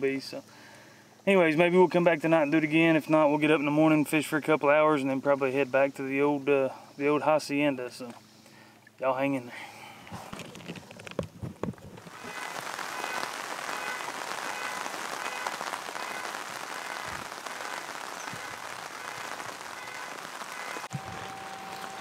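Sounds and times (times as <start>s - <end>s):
steady rain falling: 10.6s - 22.0s.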